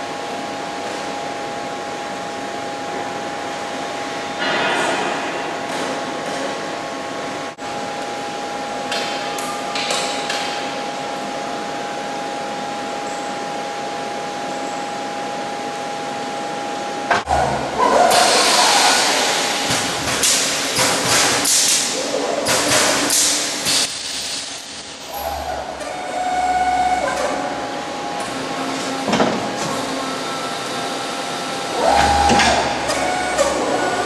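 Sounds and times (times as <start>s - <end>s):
drilling machine hiss and whine: 18.1s - 21.8s, 23.0s - 28.6s, 29.7s - 34.0s.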